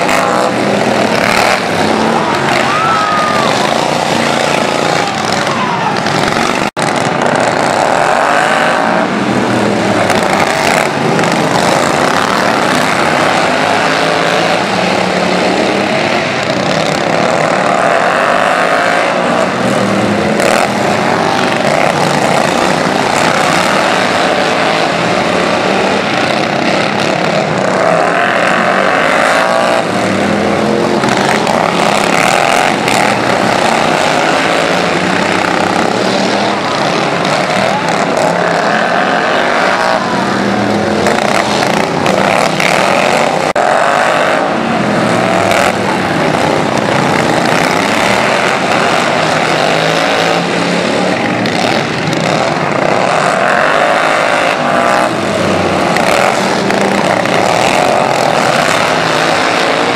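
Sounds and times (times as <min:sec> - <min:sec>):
small engines revving: 0:00.0 - 0:59.9.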